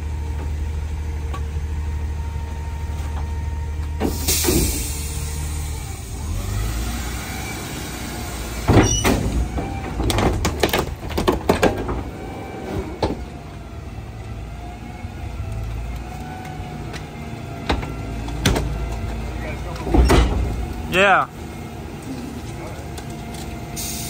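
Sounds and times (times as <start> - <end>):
garbage truck engine and hydraulics: 0.0 - 24.0
trash crushing cracks and crunches: 8.6 - 13.4.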